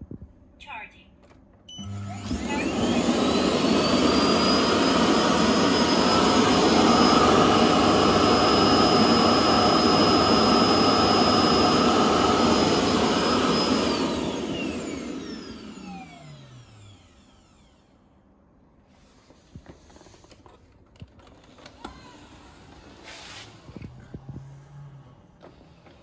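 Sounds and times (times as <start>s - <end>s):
suction fan whining: 1.7s - 18.2s.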